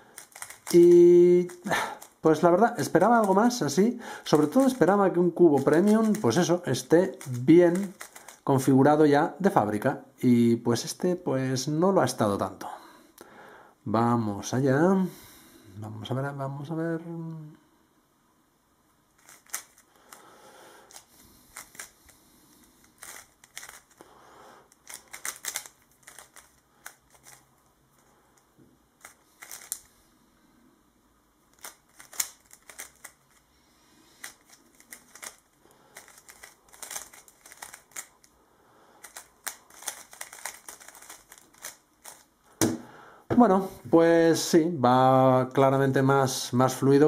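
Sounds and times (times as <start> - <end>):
speed cube plastic clicks: 0.2 - 2.2, 2.8 - 8.5, 19.2 - 20.2, 20.9 - 22.0, 22.8 - 24.0, 24.7 - 27.4, 29.0 - 29.9, 31.5 - 33.4, 34.2 - 38.3, 39.0 - 42.7.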